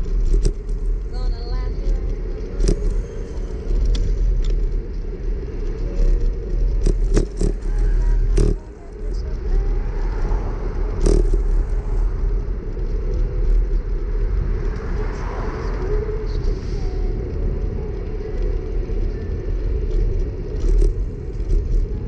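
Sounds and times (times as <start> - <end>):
tyre rumble on road: 0.0 - 22.0
wind buffeting microphone: 0.0 - 22.0
bike knocks and rattles: 6.0 - 8.6.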